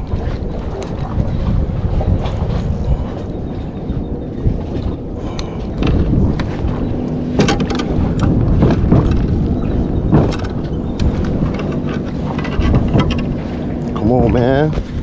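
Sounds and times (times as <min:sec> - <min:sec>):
choppy water: 0:00.0 - 0:15.0
clicks and knocks handling fish: 0:00.0 - 0:15.0
wind rumbling on microphone: 0:00.0 - 0:15.0.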